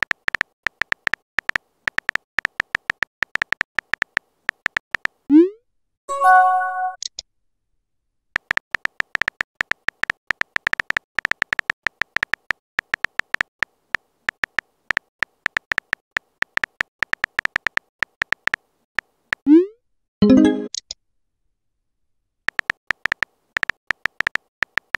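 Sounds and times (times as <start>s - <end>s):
electronic keyboard ticks: 0.0s - 5.2s, 8.4s - 19.4s, 22.5s - 24.9s.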